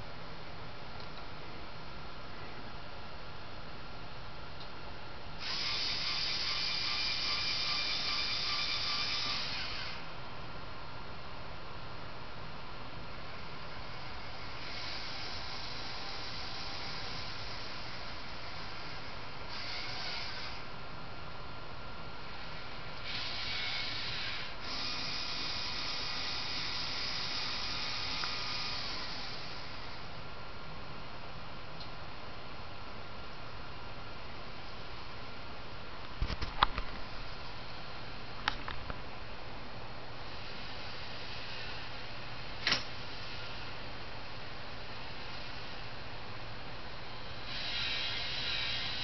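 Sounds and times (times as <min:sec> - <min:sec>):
servo motors whirring: 0:05.4 - 0:10.0, 0:14.6 - 0:20.6, 0:23.0 - 0:29.9, 0:47.5 - 0:49.0.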